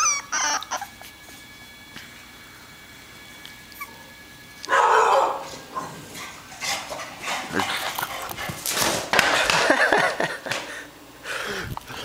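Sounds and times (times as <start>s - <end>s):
dog barking excitedly: 4.7s - 8.9s.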